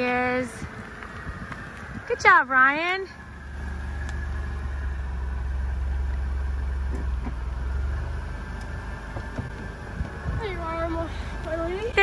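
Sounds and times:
car engine running at low speed: 0.0s - 12.0s.

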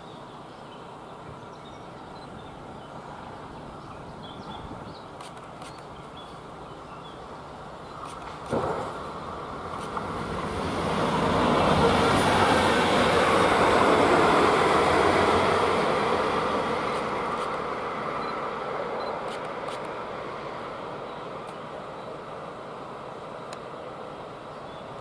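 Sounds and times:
train wheels rumbling on rails: 7.8s - 21.7s.

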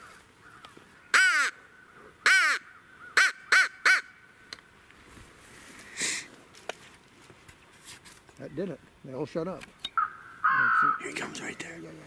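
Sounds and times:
crow call caws: 0.0s - 4.4s, 10.0s - 11.4s.

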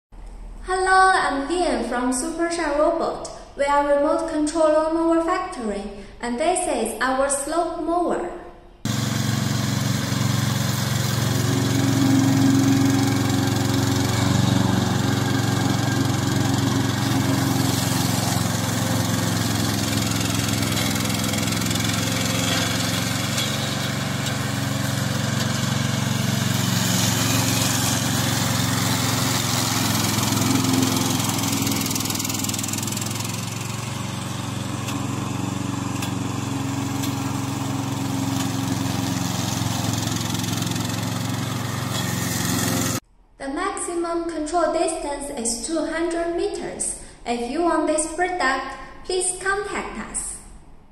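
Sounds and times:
mower engine cutting grass: 8.9s - 43.0s.

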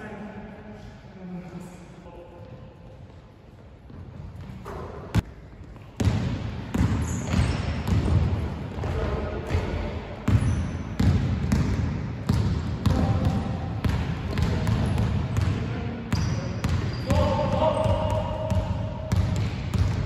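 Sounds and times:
basketball bouncing on wooden floor: 3.9s - 20.0s
sneaker squeaks on floor: 6.8s - 8.1s, 10.3s - 11.0s, 16.1s - 18.0s.

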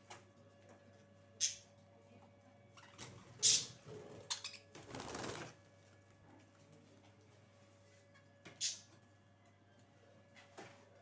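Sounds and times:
caged budgerigars fluttering: 2.8s - 5.6s.

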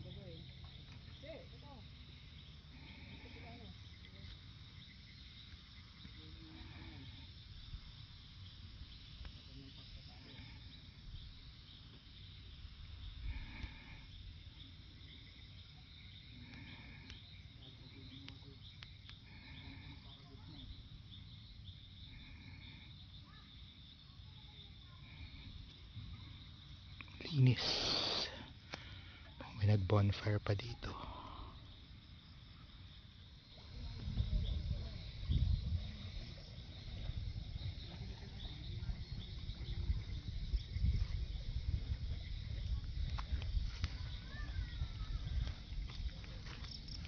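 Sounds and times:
crickets chirping: 0.0s - 47.0s
low insect trill: 0.0s - 47.0s
low rumble on microphone: 33.6s - 47.0s.

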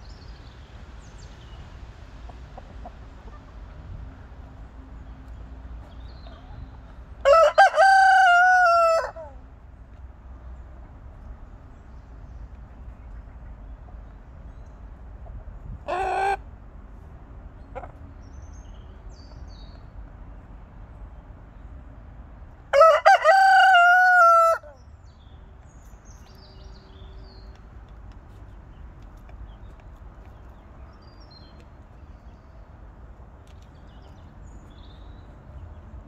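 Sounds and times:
rooster crowing: 7.2s - 9.4s, 22.7s - 24.8s
chicken call: 15.9s - 16.4s.

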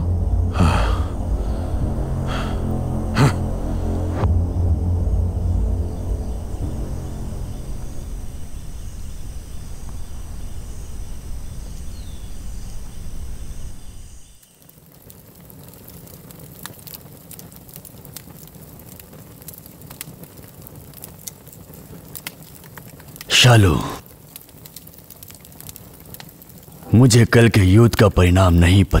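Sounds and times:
low rumble: 0.0s - 14.4s
crickets chirping: 0.0s - 14.6s
faint crackles and clicks: 7.7s - 23.4s, 24.0s - 27.0s.

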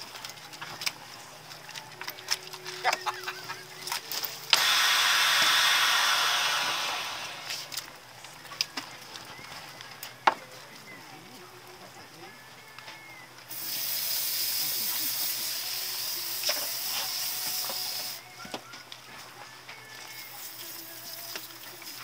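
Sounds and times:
hose water spraying: 2.9s - 7.7s, 13.5s - 18.2s, 20.1s - 22.0s.

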